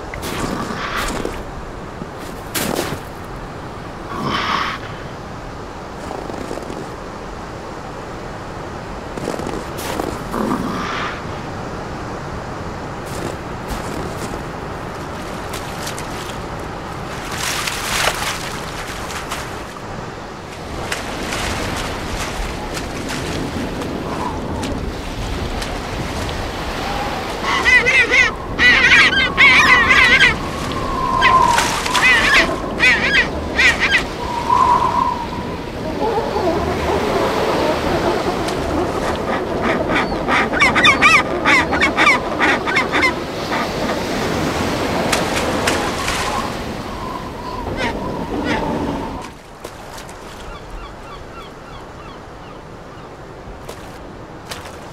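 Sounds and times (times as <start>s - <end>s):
ocean waves rushing: 0.0s - 54.9s
wind: 0.0s - 54.9s
penguins honking calls: 27.2s - 30.4s.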